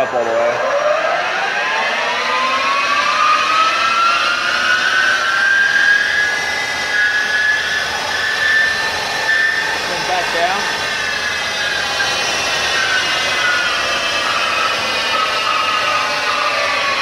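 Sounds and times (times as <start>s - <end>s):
lathe spindle whine: 0.0s - 17.0s.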